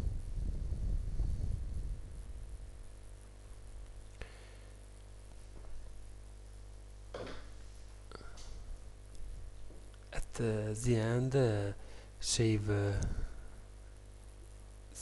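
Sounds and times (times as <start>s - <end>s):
low electrical hum and buzz: 0.0s - 15.0s.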